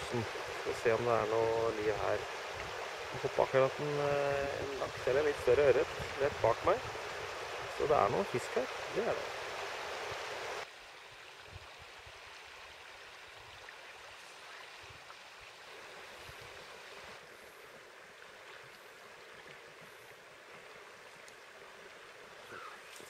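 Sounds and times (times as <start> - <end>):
river water flowing over stones: 0.0 - 23.0.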